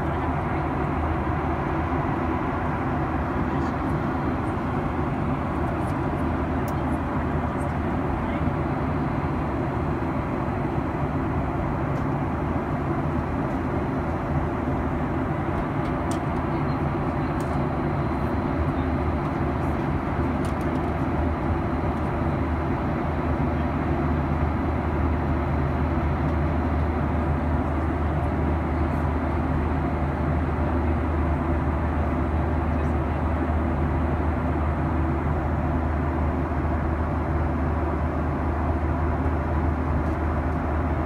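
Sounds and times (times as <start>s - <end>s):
airplane cabin engine drone: 0.0s - 41.0s.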